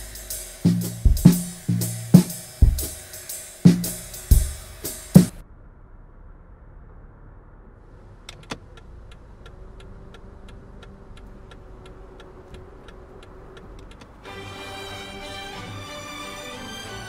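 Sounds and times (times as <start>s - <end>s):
steady ticking: 0.0s - 5.4s, 8.3s - 14.3s.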